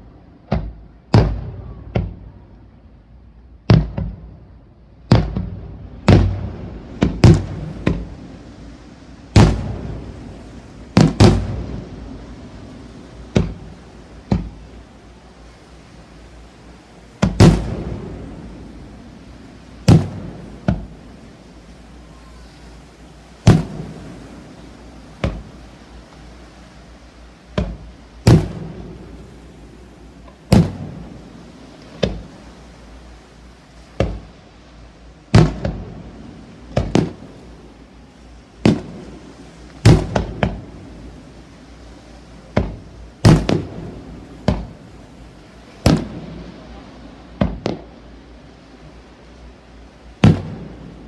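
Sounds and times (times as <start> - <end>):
firework shells booming: 0.5 - 2.3, 3.7 - 4.3, 5.1 - 8.2, 9.3 - 12.3, 13.2 - 14.7, 17.2 - 18.9, 19.8 - 21.1, 23.4 - 25.6, 27.5 - 32.3, 34.0 - 34.4, 35.3 - 37.4, 38.6 - 40.8, 42.5 - 44.9, 45.8 - 46.6, 47.3 - 48.0, 50.2 - 51.0.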